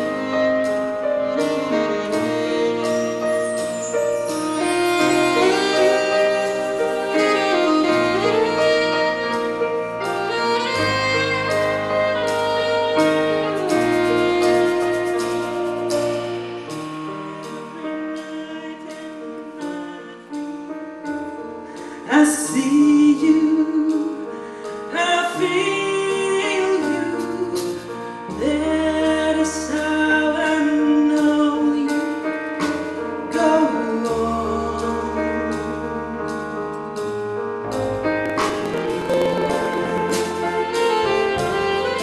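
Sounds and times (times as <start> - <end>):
big band playing: 0.0 - 42.0
woman singing: 22.1 - 32.2, 33.3 - 36.1, 38.7 - 42.0
bass line: 37.6 - 42.0.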